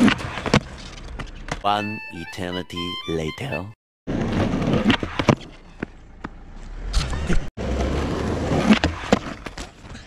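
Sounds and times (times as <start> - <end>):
skateboard wheels rumbling on asphalt: 4.1 - 6.8, 7.6 - 10.0.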